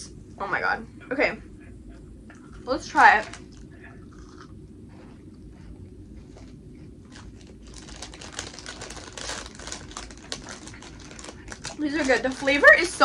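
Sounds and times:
bubble wrap crinkling: 7.0s - 13.0s.

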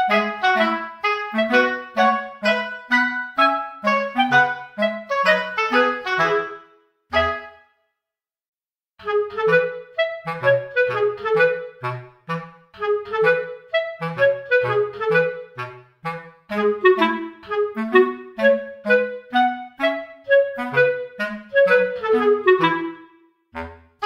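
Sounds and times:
clarinet melody: 0.0s - 7.8s, 9.0s - 24.0s.

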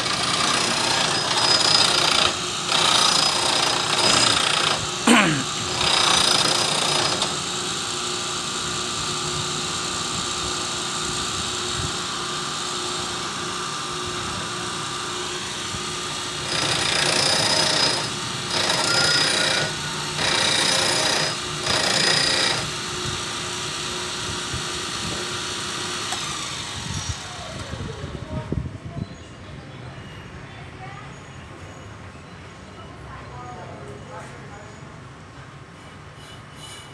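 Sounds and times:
grinding wheel grinding steel: 0.0s - 7.6s, 14.8s - 22.8s.

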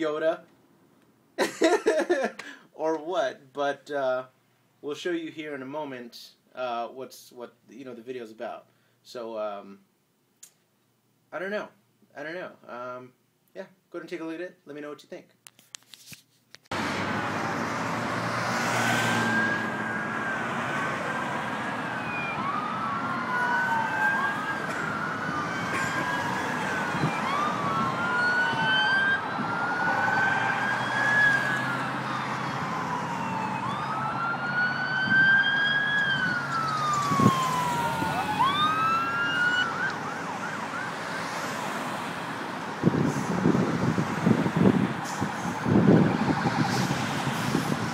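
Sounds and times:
freeway traffic noise: 16.7s - 47.9s
sirens wailing: 16.8s - 47.9s.

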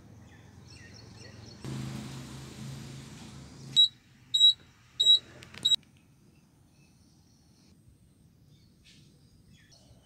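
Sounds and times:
high-pitched electronic beeps: 3.8s - 5.2s.

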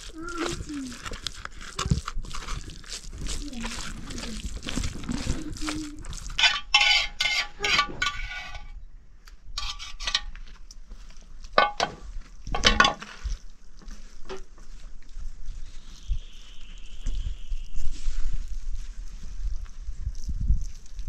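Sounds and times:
metal cookware clinking: 6.4s - 8.7s.

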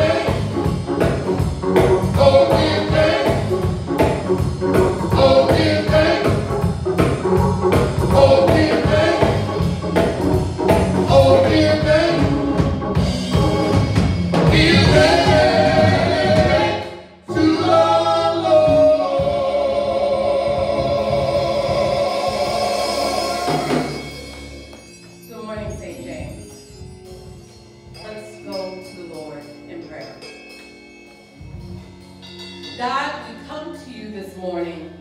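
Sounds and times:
group singing gospel: 0.0s - 24.5s
instrumental accompaniment with beat: 0.0s - 33.2s.

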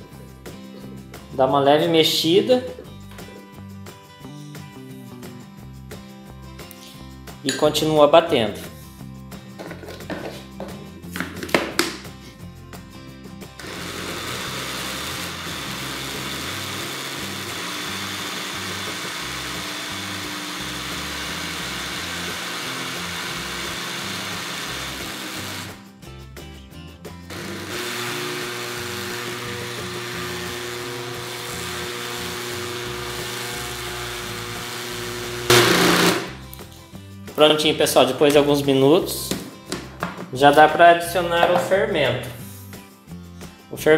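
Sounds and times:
blender motor running: 13.6s - 25.8s, 27.3s - 36.4s.

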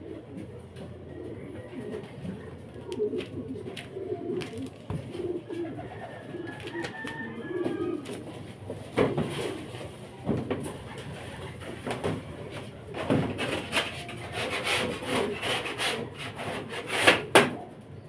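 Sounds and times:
pigeons cooing: 0.0s - 18.0s.

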